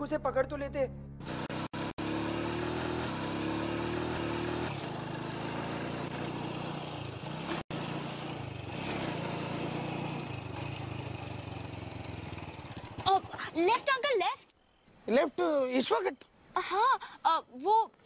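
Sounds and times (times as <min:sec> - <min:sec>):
car engine approaching: 0:01.2 - 0:13.5
small motorbike engine approaching: 0:01.2 - 0:14.1.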